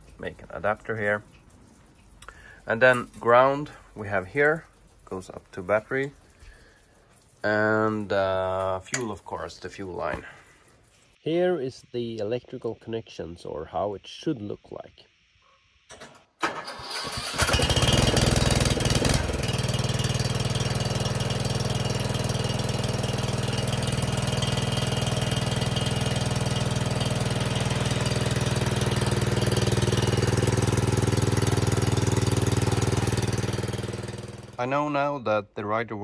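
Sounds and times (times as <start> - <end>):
engine cranking clicks: 15.9 - 19.4
ride-on mower engine running: 16.4 - 34.6.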